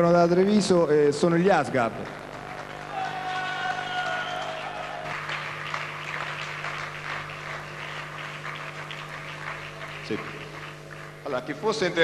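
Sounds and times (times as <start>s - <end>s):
low electrical hum: 0.0s - 12.0s
audience applauding: 1.8s - 12.0s.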